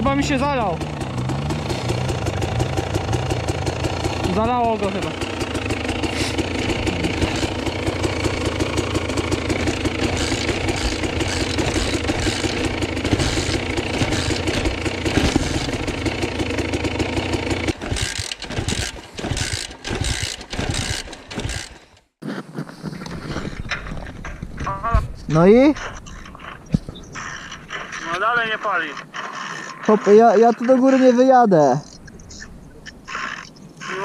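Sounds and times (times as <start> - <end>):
dirt bike engine idling: 0.0 - 21.9.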